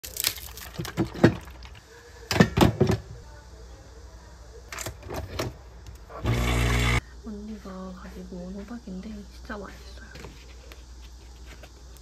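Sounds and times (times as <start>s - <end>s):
cartons and paper packets rustling: 0.0s - 1.8s.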